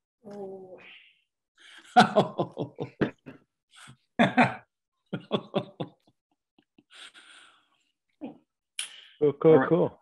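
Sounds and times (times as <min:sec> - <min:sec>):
man laughing heartily: 0:01.7 - 0:06.1.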